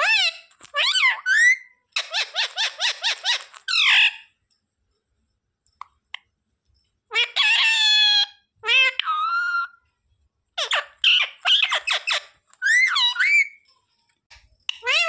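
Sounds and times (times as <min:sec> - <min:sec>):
parakeet calling: 0:00.0 - 0:04.3, 0:07.1 - 0:09.8, 0:10.6 - 0:13.6, 0:14.7 - 0:15.0.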